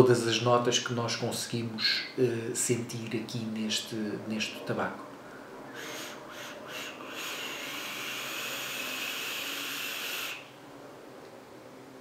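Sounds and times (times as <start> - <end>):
e-cigarette hissing: 5.8 - 10.5.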